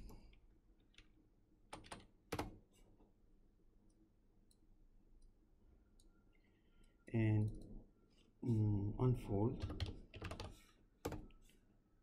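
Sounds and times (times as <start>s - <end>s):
keyboard and mouse clicks: 9.6s - 11.4s.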